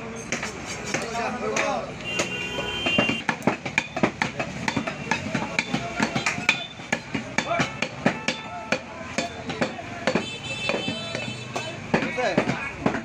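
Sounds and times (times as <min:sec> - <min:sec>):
knife chopping meat on wood: 0:00.3 - 0:13.0
murmur of voices: 0:04.1 - 0:13.0.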